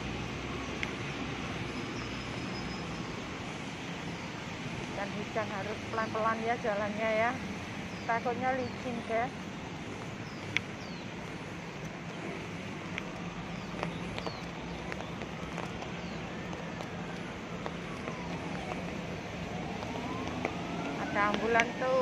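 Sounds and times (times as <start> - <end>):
rain on wet paving: 0.0 - 22.0
faint ambulance siren wailing: 12.2 - 22.0.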